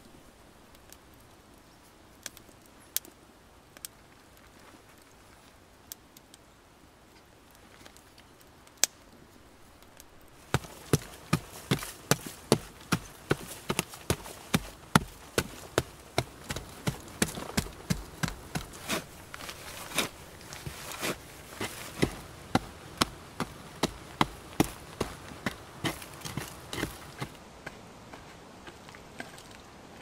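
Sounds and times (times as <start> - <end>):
loose dirt scattering: 10.0 - 30.0
shovel chopping into soil: 10.5 - 28.3.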